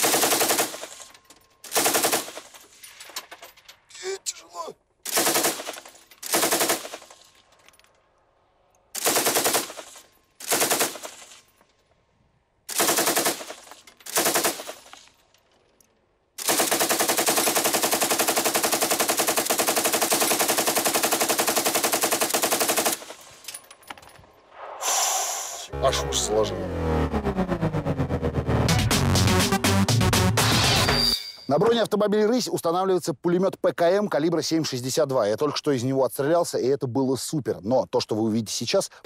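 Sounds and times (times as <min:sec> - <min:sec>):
machine gun firing bursts: 0:00.0 - 0:02.6, 0:05.1 - 0:07.2, 0:09.0 - 0:11.4, 0:12.7 - 0:14.9, 0:16.4 - 0:23.2.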